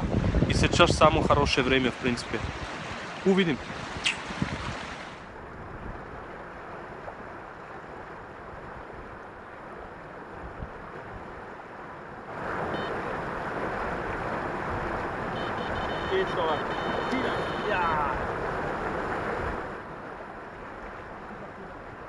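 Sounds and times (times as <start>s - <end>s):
wind rushing over microphone: 0.0s - 6.4s
river water washing against rocks: 0.9s - 22.0s.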